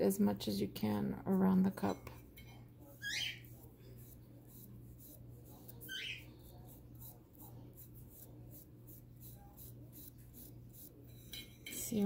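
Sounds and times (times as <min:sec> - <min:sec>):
bird chirping: 0:03.0 - 0:03.5, 0:05.9 - 0:06.3.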